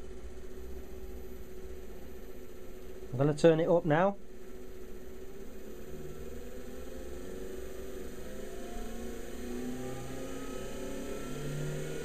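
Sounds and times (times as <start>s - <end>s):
lathe motor humming: 4.5s - 12.0s.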